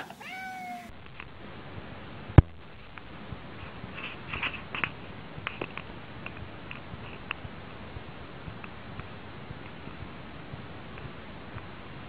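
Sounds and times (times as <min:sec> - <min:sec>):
light clicks and taps: 0:02.4 - 0:11.8.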